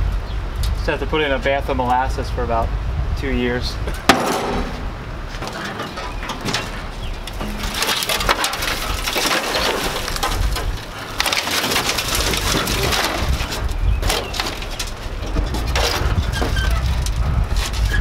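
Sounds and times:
crackles and clanks: 3.8s - 18.0s
sheet metal crunching and scraping: 3.9s - 18.0s.

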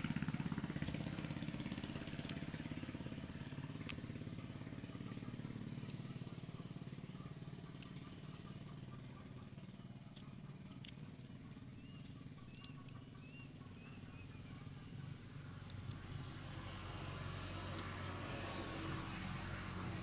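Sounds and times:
motor humming: 0.0s - 20.0s
faint high chirps: 11.7s - 14.8s.

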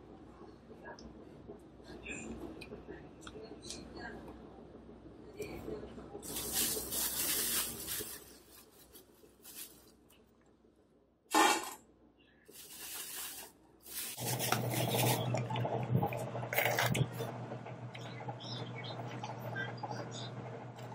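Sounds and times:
rustling: 6.2s - 10.2s, 12.5s - 15.3s.

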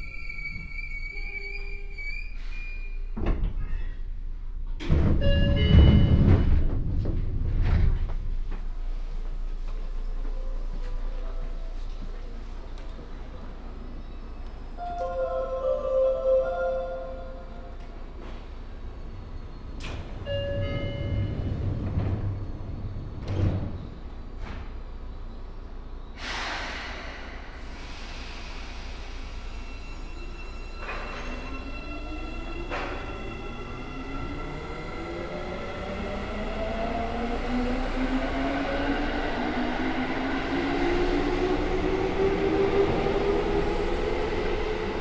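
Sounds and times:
train low rumble: 0.0s - 45.0s
train doors sliding shut: 4.7s - 8.8s, 19.8s - 25.0s, 26.2s - 31.7s, 32.6s - 33.7s
train door thuds: 4.8s - 8.2s
door chime: 5.2s - 6.5s.

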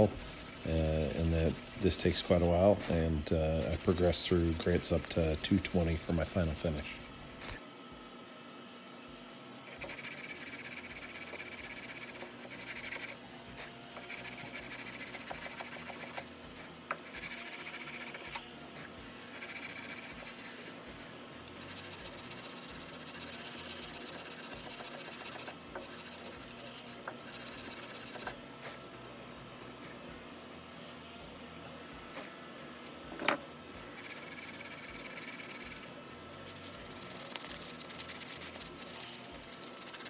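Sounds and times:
sandpaper rubbing on wood: 0.0s - 7.6s, 9.8s - 13.2s, 14.0s - 16.3s, 17.1s - 18.4s, 19.4s - 20.8s, 21.6s - 28.4s, 34.0s - 35.9s, 36.5s - 40.0s.

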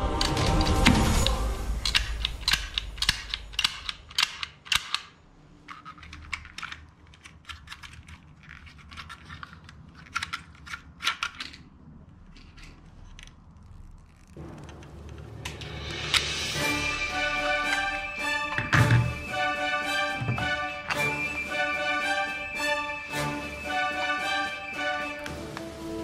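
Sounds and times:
toy cap gun clicking: 1.2s - 5.1s
toy gun cylinder rattling: 1.2s - 14.8s.

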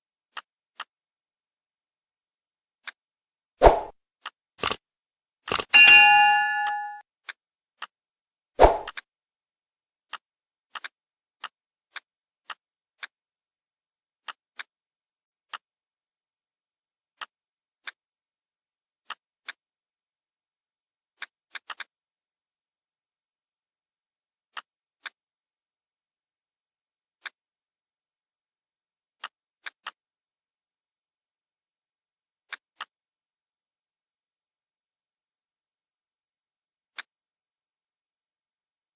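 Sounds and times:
mouse and keyboard clicks: 4.2s - 4.8s, 10.1s - 13.1s.

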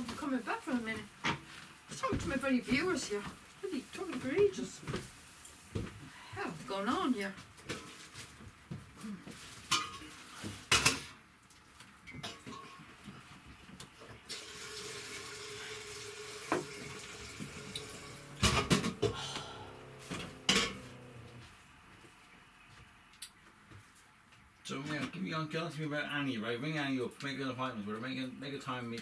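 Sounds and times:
tap running into sink: 14.3s - 19.2s
dishes clattering: 16.4s - 21.4s
steady hum: 17.2s - 23.1s.

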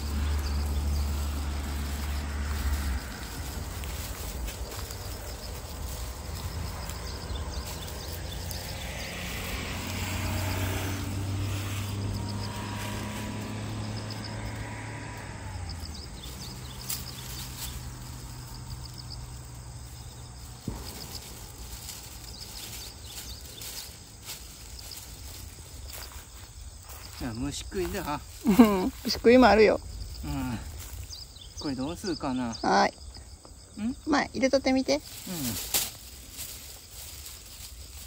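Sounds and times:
soft rustling: 0.0s - 9.8s, 19.8s - 31.5s, 35.0s - 38.0s
distant motor hum: 0.0s - 31.7s
insects chirping in trills: 0.0s - 38.0s.

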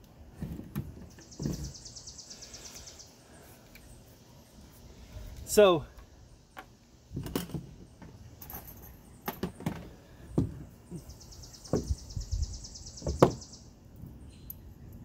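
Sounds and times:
tool knocking on wooden boards: 9.3s - 10.7s, 13.0s - 13.4s.

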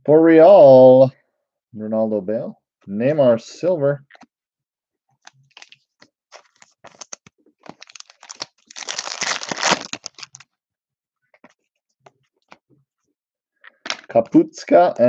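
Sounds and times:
foil pack tearing and crinkling: 5.5s - 10.4s.

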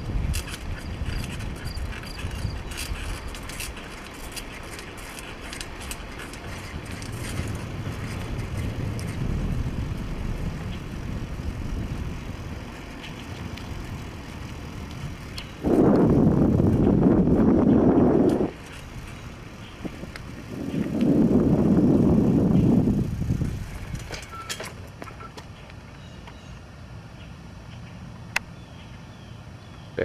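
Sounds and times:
wind on microphone: 0.0s - 3.8s, 5.5s - 24.4s
bicycle rattling clicks: 0.0s - 26.4s
tyre noise on road: 0.0s - 30.0s.

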